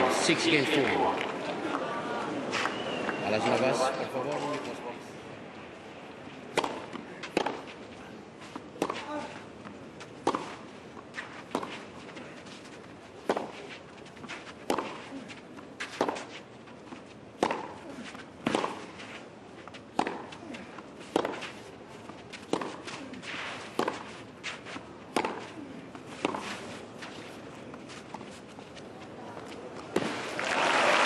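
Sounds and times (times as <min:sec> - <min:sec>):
tennis ball bouncing: 0:06.5 - 0:07.8, 0:08.5 - 0:28.4, 0:29.4 - 0:30.2
tennis ball struck by racket: 0:06.5 - 0:07.8, 0:08.8 - 0:09.1, 0:10.2 - 0:10.6, 0:11.5 - 0:11.8, 0:13.2 - 0:13.6, 0:14.3 - 0:15.2, 0:15.8 - 0:16.3, 0:17.4 - 0:19.0, 0:19.9 - 0:27.3, 0:29.9 - 0:30.3.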